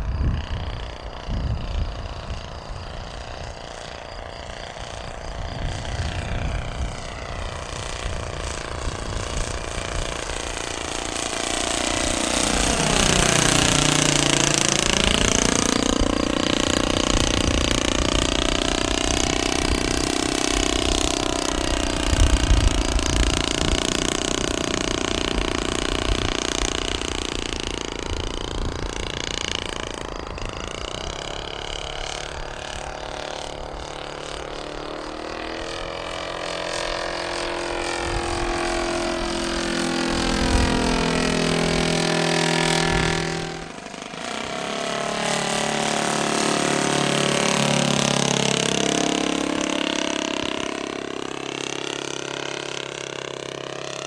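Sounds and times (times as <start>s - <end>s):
model airplane engine running: 0.0s - 54.0s.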